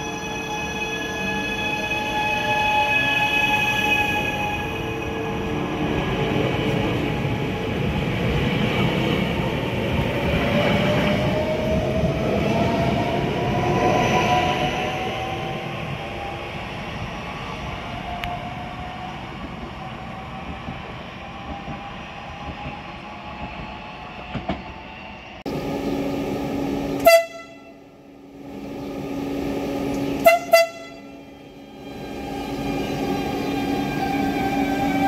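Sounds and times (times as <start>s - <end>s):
arriving train humming: 0.0s - 35.0s
electric train pulling away: 17.9s - 35.0s
train horn blasts: 27.0s - 28.0s, 30.1s - 31.3s.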